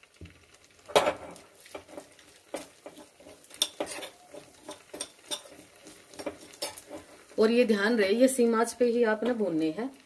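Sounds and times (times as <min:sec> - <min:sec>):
spoon scraping a frying pan: 0:00.9 - 0:07.7.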